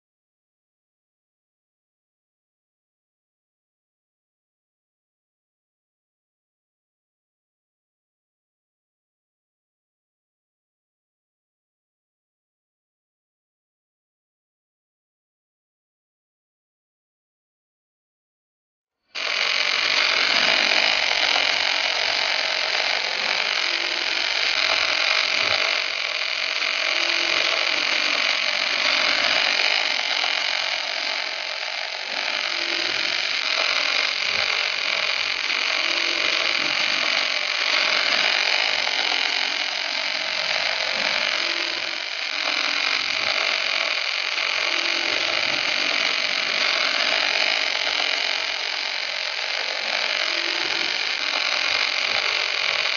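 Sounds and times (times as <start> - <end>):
welding arcs crackling and hissing: 19.2 - 52.9.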